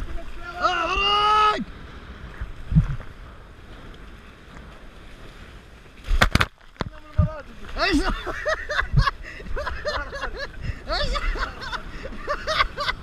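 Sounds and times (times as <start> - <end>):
wind noise on microphone: 0.0 - 4.8, 6.0 - 7.5, 8.1 - 13.0
hull rushing through choppy water: 0.0 - 13.0
low thump: 2.7 - 3.0.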